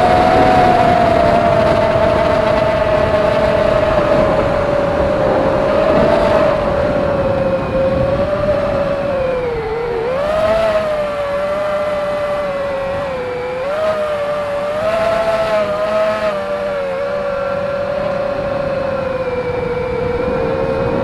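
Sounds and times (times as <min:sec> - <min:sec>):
quadcopter motors buzzing whine: 0:00.0 - 0:21.0
wind noise rushes: 0:00.0 - 0:21.0.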